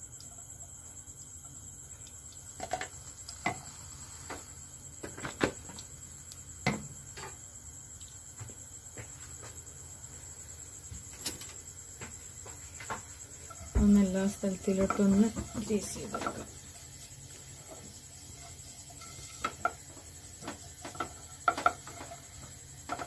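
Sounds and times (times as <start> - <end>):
ghee popping in a pot: 2.0 - 6.9, 14.5 - 23.0.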